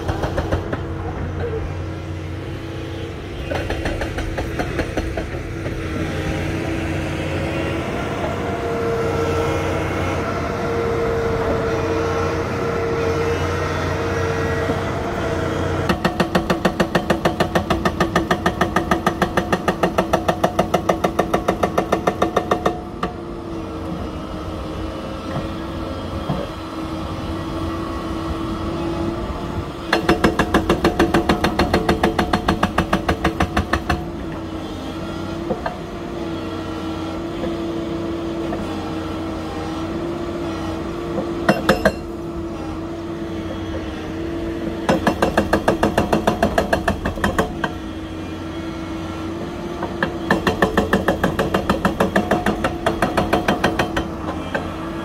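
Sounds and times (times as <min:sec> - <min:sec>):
hydraulic rock breaker hammering: 0:00.0 - 0:01.6, 0:03.4 - 0:05.9, 0:15.5 - 0:23.3, 0:29.8 - 0:55.0
diesel engine running: 0:00.0 - 0:55.0.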